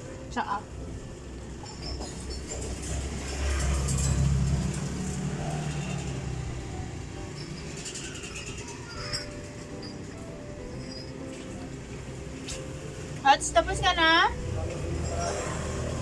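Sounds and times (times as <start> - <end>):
vehicle engine passing by: 2.3 - 9.0, 12.0 - 16.0.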